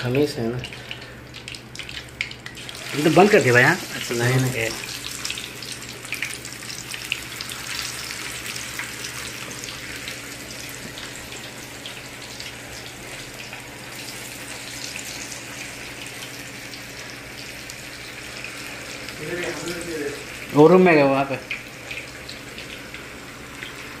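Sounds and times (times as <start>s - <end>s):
oil bubbling and crackling: 0.0s - 24.0s.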